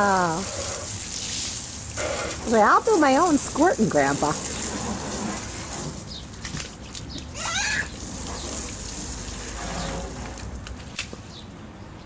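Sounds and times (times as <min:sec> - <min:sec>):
garden hose spraying water: 0:00.0 - 0:11.3
child squealing: 0:07.3 - 0:08.0.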